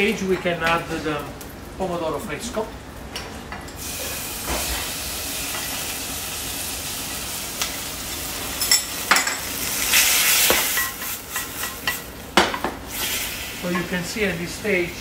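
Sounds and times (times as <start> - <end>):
tomatoes sizzling in oil: 3.6 - 15.0.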